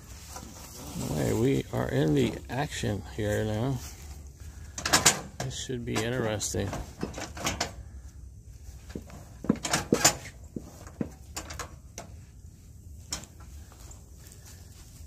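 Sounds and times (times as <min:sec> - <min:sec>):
lawn mower parts clicking and knocking: 0:04.7 - 0:07.9, 0:08.8 - 0:12.3, 0:13.0 - 0:13.8.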